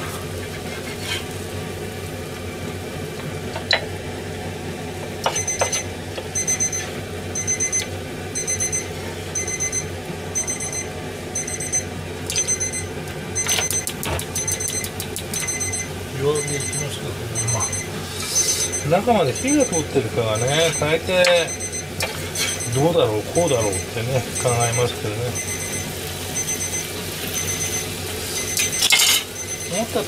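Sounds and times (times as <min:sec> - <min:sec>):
appliance beeping: 0:02.3 - 0:30.0
sharp clicks: 0:13.7 - 0:15.4
patties sizzling in a pan: 0:17.0 - 0:30.0.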